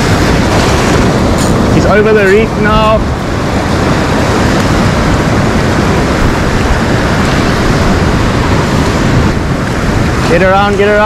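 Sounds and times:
surf breaking over rocks: 0:00.0 - 0:11.0.

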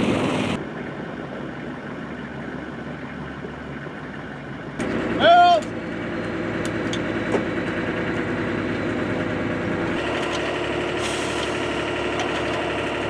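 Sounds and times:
deep rumble: 0:00.0 - 0:13.0
engine drone: 0:00.0 - 0:13.0.

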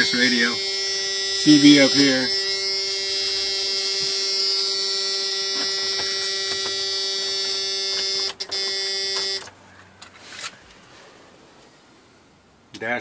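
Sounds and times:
electrical buzz: 0:00.0 - 0:09.5.

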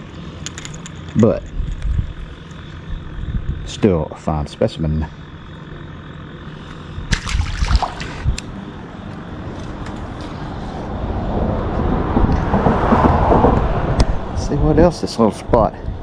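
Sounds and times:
traffic rumble on bridge: 0:00.0 - 0:16.0
water splashing: 0:07.1 - 0:08.4.

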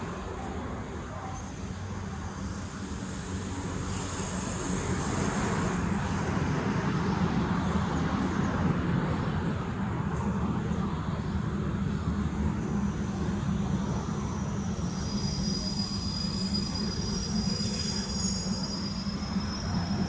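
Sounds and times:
train rumbling along track: 0:00.0 - 0:20.0.

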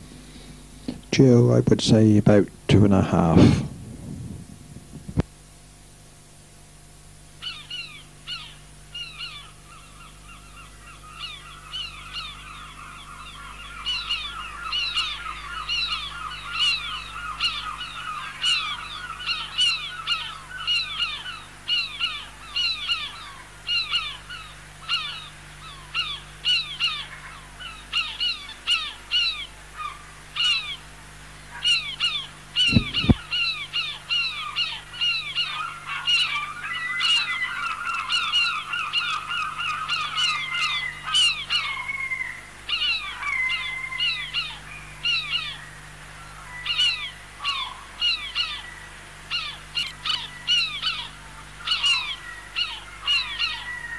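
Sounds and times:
gulls calling: 0:06.9 - 0:53.9
dull thump: 0:32.7 - 0:33.2.

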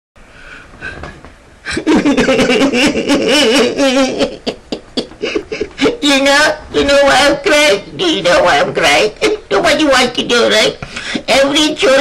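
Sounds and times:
man crying theatrically: 0:01.7 - 0:06.1.

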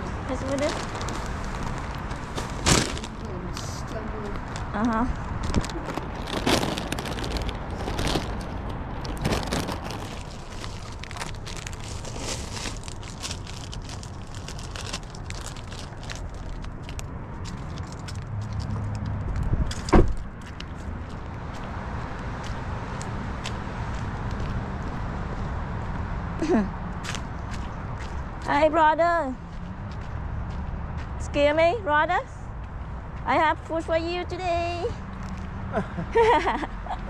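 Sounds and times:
plastic bags crinkling: 0:00.3 - 0:03.3, 0:05.4 - 0:18.2
car door shutting: 0:19.8 - 0:20.2.

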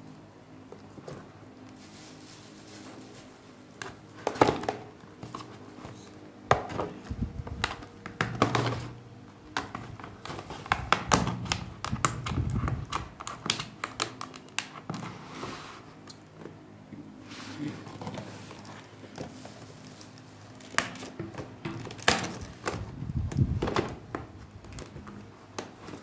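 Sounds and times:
plastic crackling: 0:06.9 - 0:14.9, 0:18.1 - 0:26.0
scissors cutting plastic: 0:10.0 - 0:14.8.

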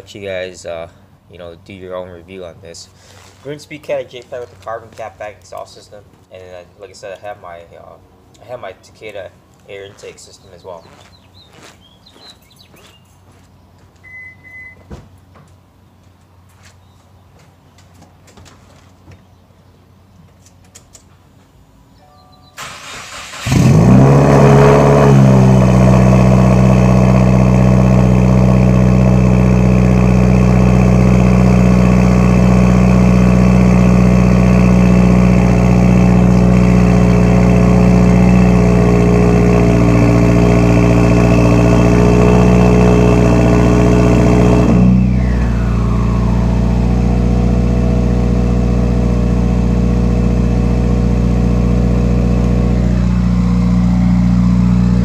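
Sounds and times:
car engine cranking and starting: 0:22.6 - 0:55.0.

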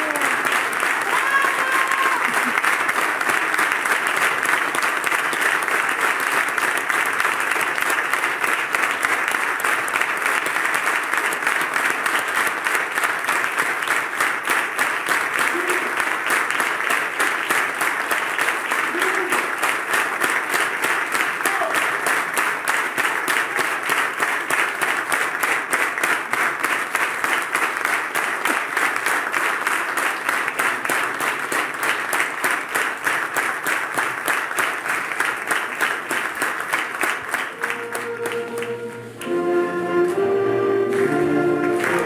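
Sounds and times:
audience applauding: 0:00.0 - 0:42.0
music with held notes: 0:37.6 - 0:42.0.

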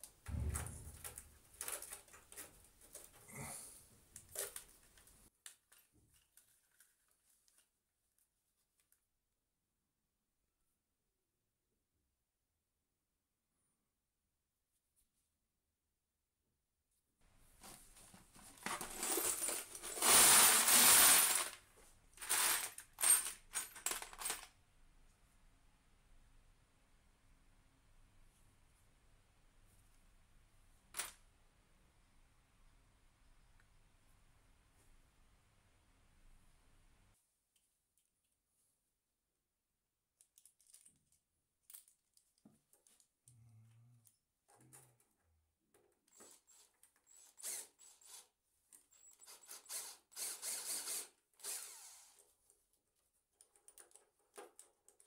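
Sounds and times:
hand stirring rattling screws: 0:18.8 - 0:21.6, 0:22.2 - 0:24.5
metal screws clattering onto tray: 0:22.2 - 0:24.5.

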